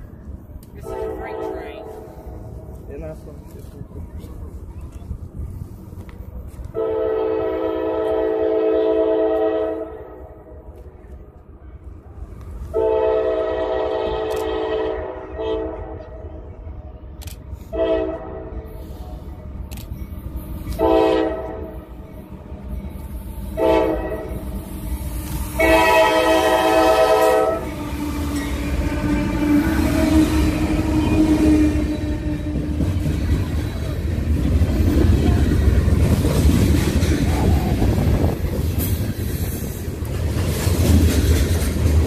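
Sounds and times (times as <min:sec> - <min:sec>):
train rumble: 0:00.0 - 0:42.0
locomotive air horn blasts: 0:00.8 - 0:02.1, 0:06.7 - 0:10.2, 0:12.7 - 0:16.1, 0:17.7 - 0:18.7, 0:20.7 - 0:21.7, 0:23.6 - 0:24.4, 0:25.5 - 0:27.8.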